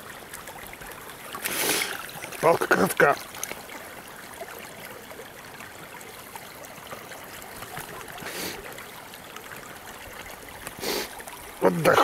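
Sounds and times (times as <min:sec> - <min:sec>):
water trickling: 0:00.0 - 0:12.0.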